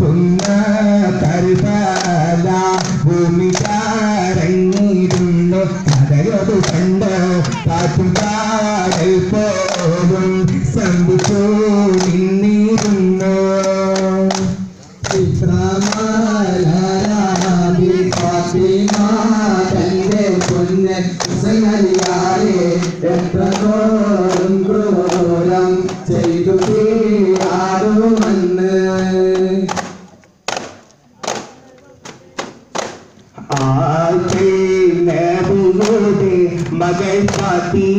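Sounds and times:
men singing a devotional chant: 0.0s - 30.2s, 33.3s - 37.9s
frame drum beats: 14.3s - 31.4s, 32.0s - 37.9s.

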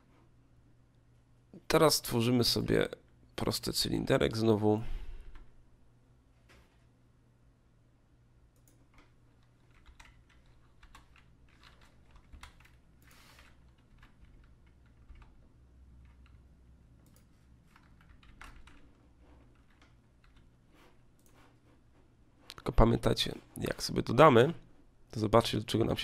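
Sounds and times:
low steady hum: 0.0s - 26.0s
computer keyboard clicking: 8.6s - 15.4s, 16.0s - 18.9s.

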